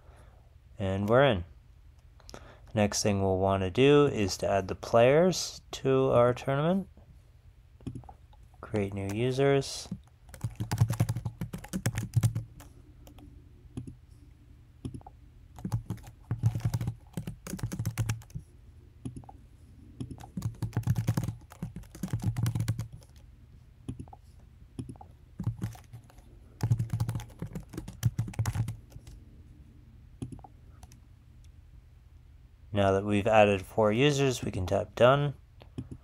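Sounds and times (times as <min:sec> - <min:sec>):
typing on computer keyboard: 0:09.9 - 0:13.2, 0:14.8 - 0:18.4, 0:20.0 - 0:23.2, 0:24.8 - 0:29.2.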